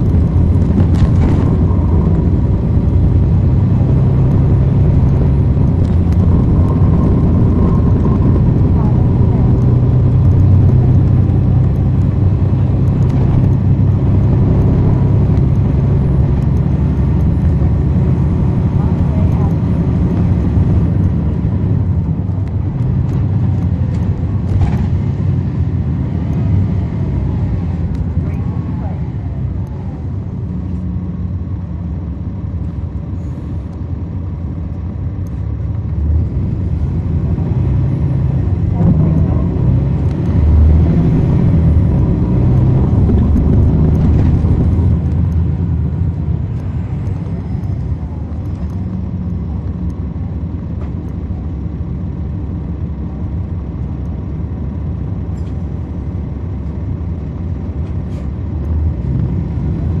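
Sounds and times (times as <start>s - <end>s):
bus diesel engine running: 0.0s - 60.0s.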